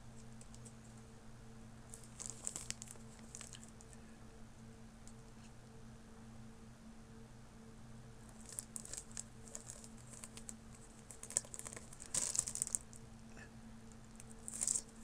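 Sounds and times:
faint steady hum: 0.0s - 15.0s
plastic wrapping crinkling: 1.9s - 3.9s, 8.3s - 13.0s, 14.0s - 15.0s.

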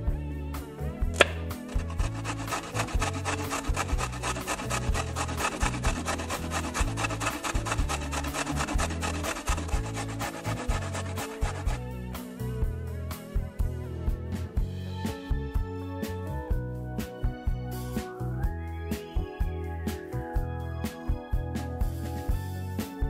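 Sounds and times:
carrot rasping on metal grater: 1.2s - 11.8s
knife cutting on wooden board: 1.2s - 11.8s.

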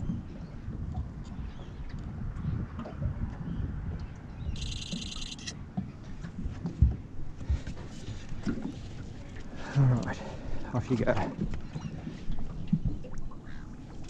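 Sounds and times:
wind rumble on microphone: 0.0s - 14.0s
knocks in a boat: 5.7s - 8.8s.

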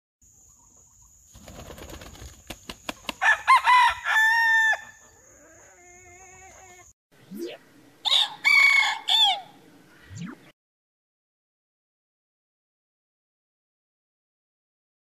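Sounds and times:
rooster crowing: 3.2s - 6.9s, 8.0s - 9.6s.

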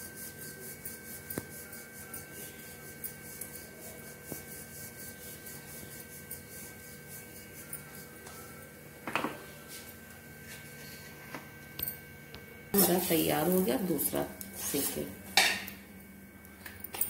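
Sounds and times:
rolling pin rubbing on dough: 0.0s - 8.8s.

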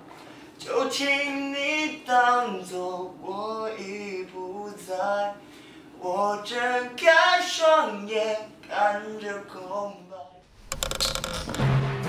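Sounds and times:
young man singing: 0.6s - 5.4s, 6.0s - 10.4s.

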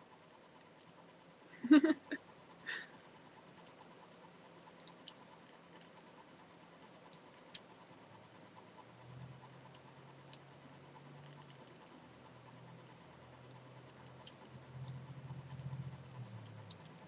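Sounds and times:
faint low hum: 0.0s - 17.0s
knitting needles clicking: 12.8s - 17.0s.

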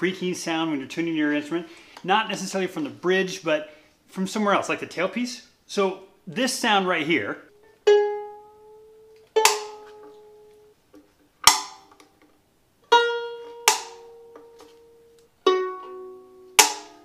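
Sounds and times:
violin strings ringing: 7.5s - 10.8s, 12.9s - 17.0s
violin tailpiece snapping: 9.2s - 10.2s, 11.4s - 12.3s, 13.5s - 15.3s, 16.6s - 17.0s.

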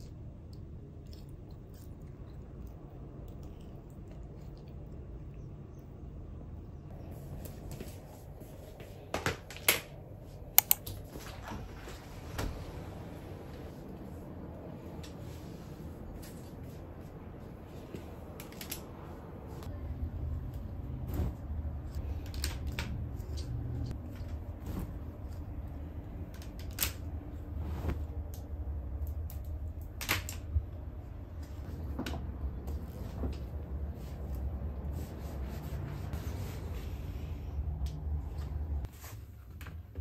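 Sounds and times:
laundry rustling: 7.0s - 28.8s, 30.2s - 40.0s.

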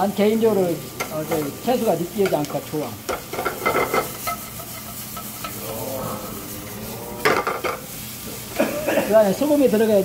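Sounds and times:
vegetables sizzling in oil: 0.0s - 10.0s
metal spatula scraping pan: 3.1s - 7.8s.

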